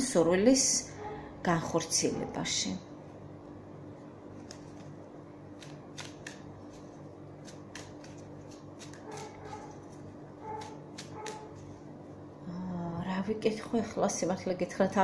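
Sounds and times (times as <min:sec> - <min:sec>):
steady low hum: 0:00.0 - 0:15.0
cards being shuffled: 0:04.4 - 0:11.8.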